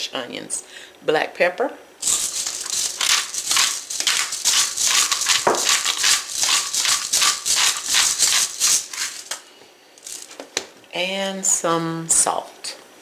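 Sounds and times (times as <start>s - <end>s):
pepper grinder grinding: 2.0s - 9.4s, 10.0s - 10.4s.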